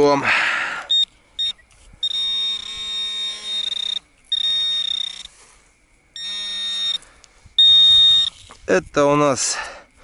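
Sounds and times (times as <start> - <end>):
metal detector tone: 0.9 - 5.4, 6.2 - 8.5.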